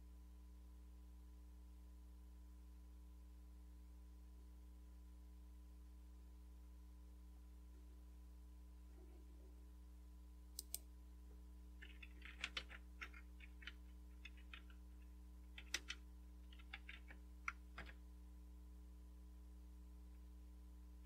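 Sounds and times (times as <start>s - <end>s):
sharp clicks: 10.6s - 10.9s, 11.8s - 18.0s
keyboard typing: 11.8s - 18.0s.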